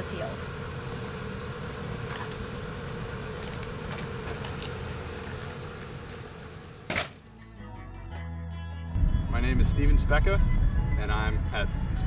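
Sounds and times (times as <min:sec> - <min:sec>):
ventilation fan humming: 0:00.0 - 0:07.3.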